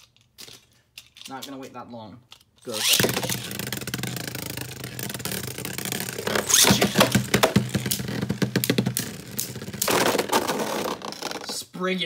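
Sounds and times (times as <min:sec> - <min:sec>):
top launcher zip: 0:02.7 - 0:11.5
spinning top humming: 0:02.8 - 0:10.8.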